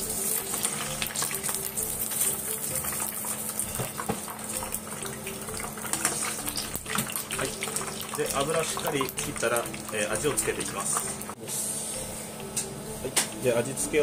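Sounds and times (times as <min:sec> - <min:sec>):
oil sizzling in a frying pan: 0:00.0 - 0:11.4.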